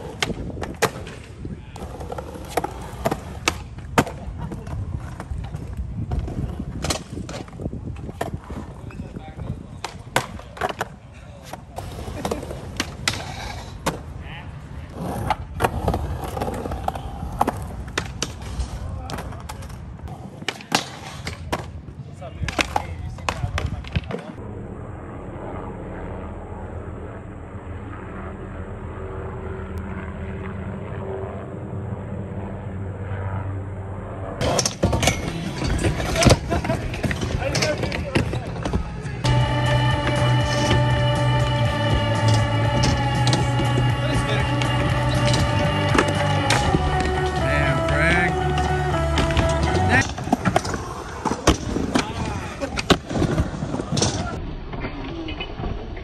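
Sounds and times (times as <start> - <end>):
skateboard wheels rolling on concrete: 0.0 - 24.4, 34.4 - 56.0
skateboard clacking on ground: 9.8 - 14.1, 15.0 - 21.8, 22.4 - 24.4
helicopter engine and rotor drone: 24.4 - 34.4.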